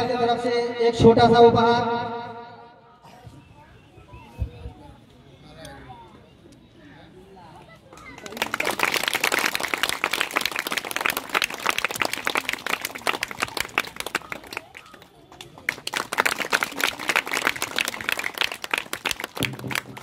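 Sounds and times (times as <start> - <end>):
crowd applauding: 8.0 - 20.0.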